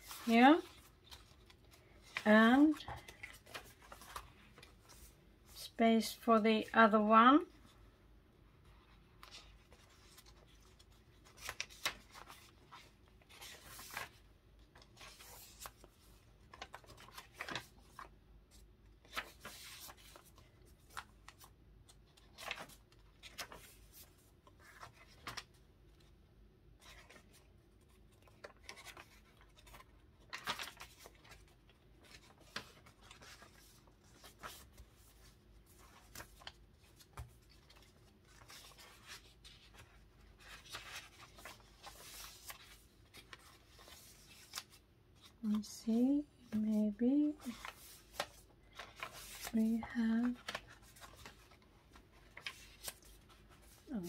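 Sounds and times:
paper rustling and scraping: 0:26.8 - 0:45.3, 0:47.4 - 0:54.0.

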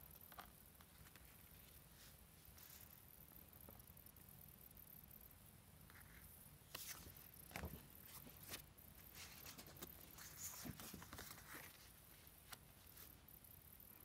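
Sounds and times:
postcards rustling and tapping: 0:06.7 - 0:12.7.

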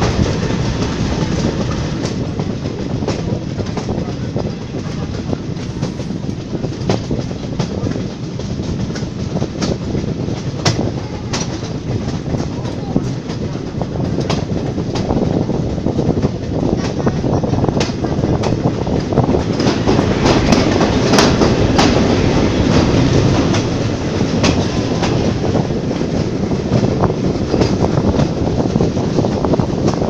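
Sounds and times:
train wheels clickety-clack: 0:00.0 - 0:30.0.

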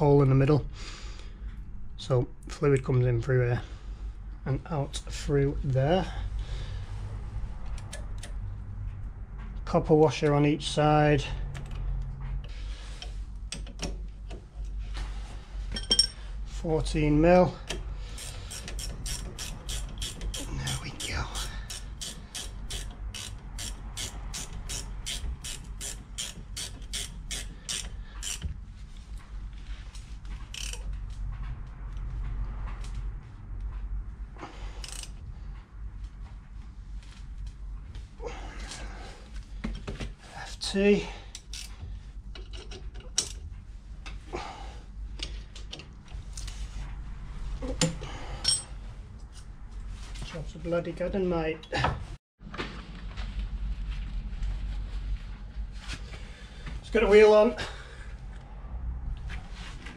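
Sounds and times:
metallic clinks of tools: 0:15.7 - 0:16.2, 0:47.8 - 0:48.7
socket ratchet clicking: 0:17.6 - 0:20.5, 0:21.4 - 0:28.5.

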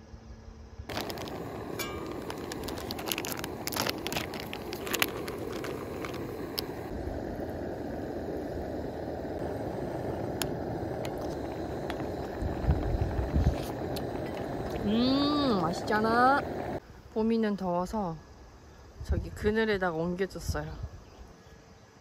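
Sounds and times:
plastic rustling: 0:00.9 - 0:06.8
camp stove burner rushing: 0:00.9 - 0:16.8
soup boiling in pot: 0:00.9 - 0:16.8.

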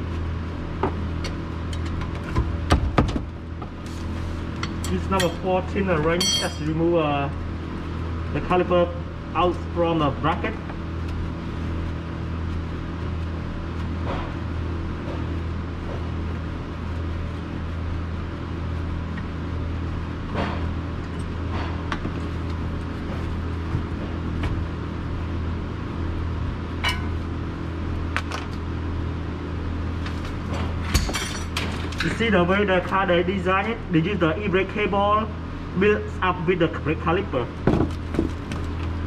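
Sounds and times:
low mechanical hum: 0:00.0 - 0:39.0
light metallic tool clinks: 0:06.2 - 0:06.7.

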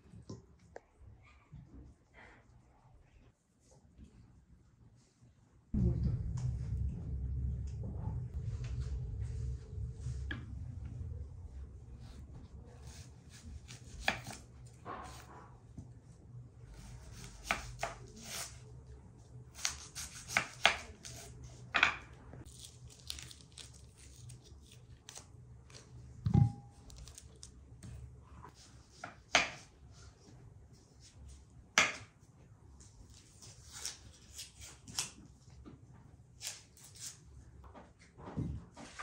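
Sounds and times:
onion skin crackling and rustling: 0:22.4 - 0:26.0, 0:26.8 - 0:27.6.

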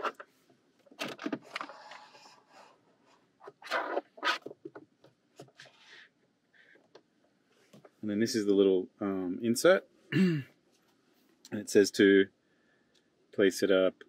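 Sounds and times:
cable scraping against plastic trim: 0:01.0 - 0:02.8, 0:03.4 - 0:04.8.

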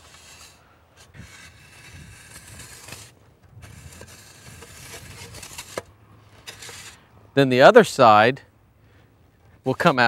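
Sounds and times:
shovel scraping into dirt: 0:00.0 - 0:07.0.

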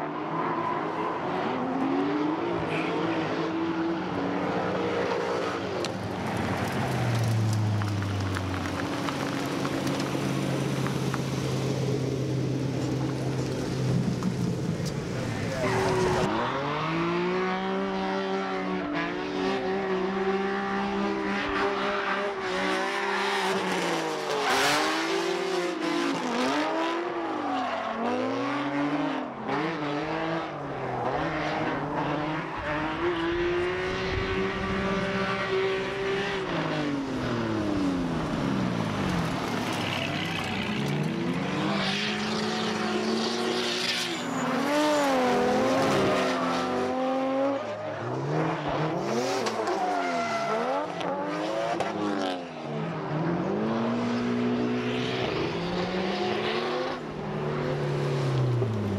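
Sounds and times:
car engines revving: 0:00.0 - 0:58.9
tires squealing: 0:12.6 - 0:17.7, 0:26.4 - 0:29.8, 0:36.2 - 0:51.8.

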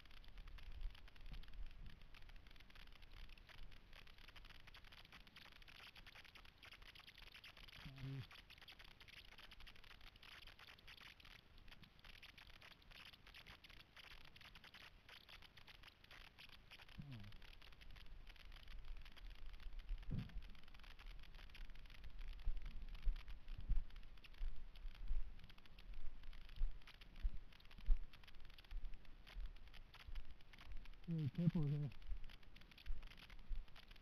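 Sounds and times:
faint hiss: 0:00.0 - 0:34.0
short low voice sound: 0:07.8 - 0:08.3, 0:17.0 - 0:17.4, 0:31.1 - 0:32.0.

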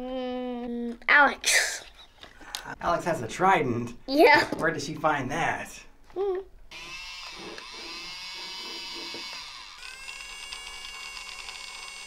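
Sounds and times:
small electric motor whining: 0:06.7 - 0:12.0.

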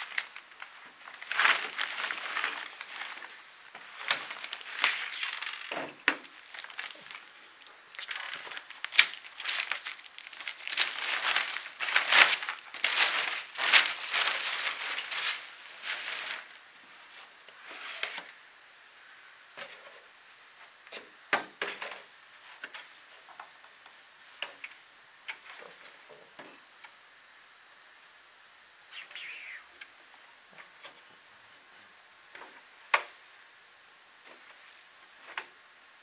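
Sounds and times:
packing foam rustling and crinkling: 0:00.0 - 0:18.2.

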